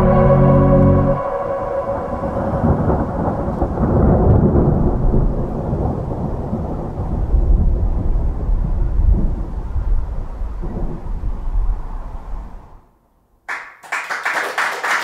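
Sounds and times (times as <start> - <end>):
keyboard chord: 0.0 - 4.0
rumbling thunder: 0.0 - 12.5
rain: 1.8 - 12.8.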